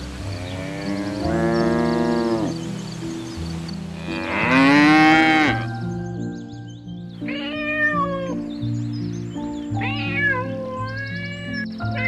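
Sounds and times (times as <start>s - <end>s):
background music: 0.0s - 12.0s
kitten meowing: 7.2s - 8.4s, 9.8s - 12.0s.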